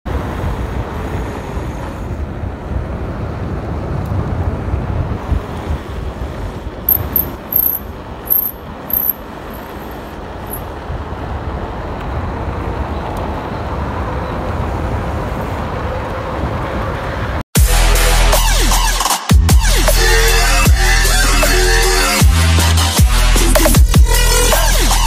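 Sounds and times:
high-pitched squeaks: 0:06.9 - 0:10.6.

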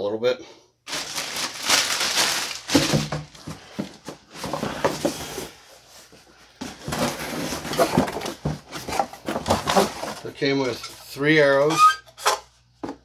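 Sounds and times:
plastic bag crinkling: 0:00.9 - 0:04.1
cardboard box flaps rustling: 0:00.9 - 0:05.5.

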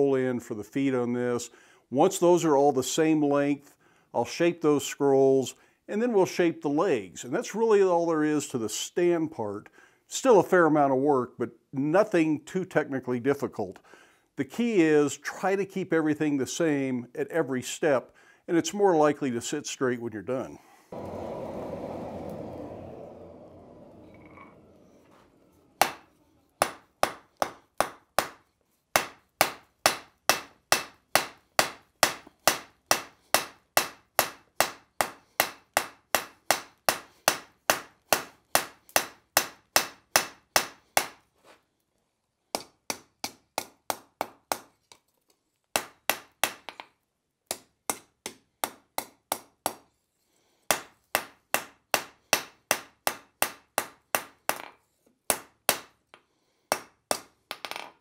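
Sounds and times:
hammer striking steel on anvil: 0:25.8 - 0:28.4, 0:29.0 - 0:41.2.

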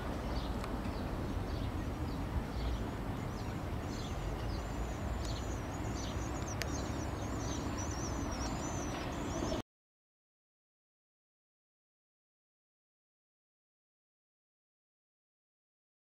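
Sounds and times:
low outdoor rumble: 0:00.0 - 0:09.6
songbirds chirping: 0:00.0 - 0:09.6
high bird warble: 0:00.2 - 0:09.6.

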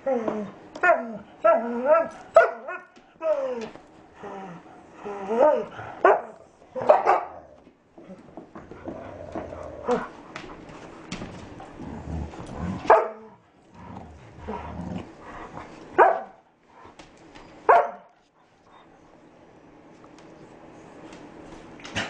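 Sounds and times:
puppies scuffling: 0:07.5 - 0:12.5.

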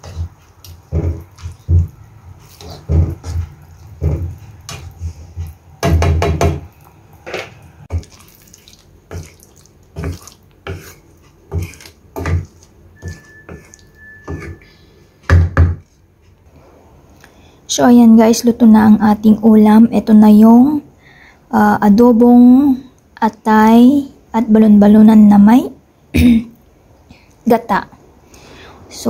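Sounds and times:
spatula scraping a frying pan: 0:00.0 - 0:05.6, 0:09.1 - 0:15.0
sauce sloshing: 0:00.0 - 0:05.8, 0:06.6 - 0:14.6.

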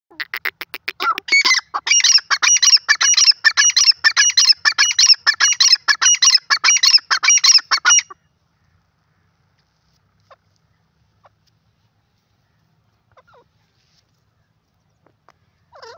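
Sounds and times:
francolin calling: 0:00.2 - 0:09.3.

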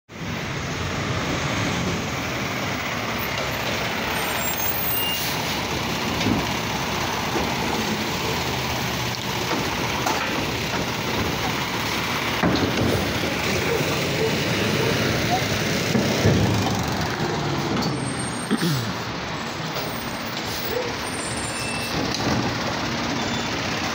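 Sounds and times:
garbage truck engine: 0:00.1 - 0:23.9
hydraulic arm working: 0:06.0 - 0:18.4.

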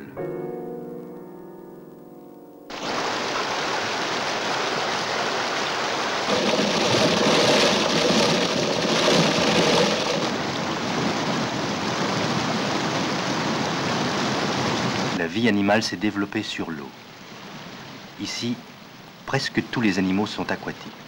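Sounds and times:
whitewater rapids rushing: 0:02.7 - 0:15.2.

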